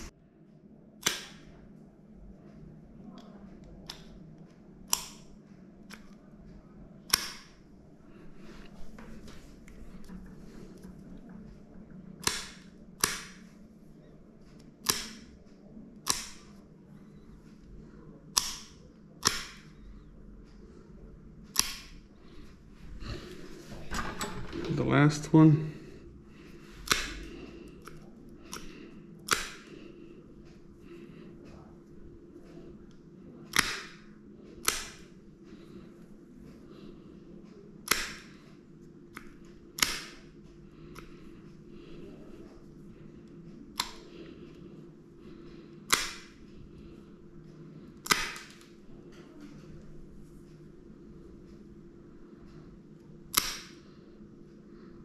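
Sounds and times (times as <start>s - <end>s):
nail clippers clicking: 12.2s - 13.4s, 14.8s - 15.2s, 16.0s - 16.5s, 18.4s - 19.6s, 21.5s - 22.0s, 26.8s - 29.7s, 33.5s - 34.0s, 34.6s - 35.1s, 37.8s - 38.4s, 45.9s - 46.3s, 53.3s - 53.7s.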